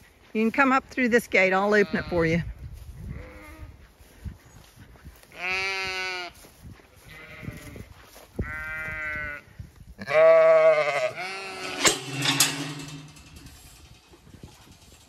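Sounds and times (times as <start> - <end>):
sheep bleating: 5.4 - 6.4, 7.1 - 7.8, 8.4 - 9.4, 10.0 - 11.9.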